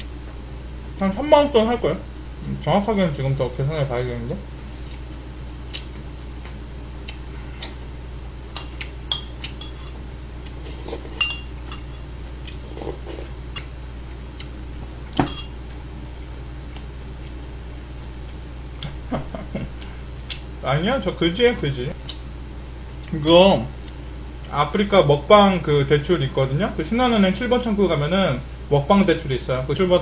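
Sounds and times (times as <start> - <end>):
low hum: 0.0 - 30.0
spoon clinking on ceramic bowl: 11.2 - 12.0.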